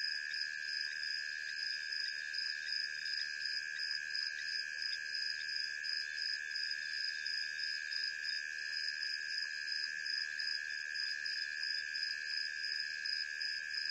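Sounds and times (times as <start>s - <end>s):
crickets trilling: 0.0s - 9.4s
high pulsing insect call: 0.0s - 13.9s.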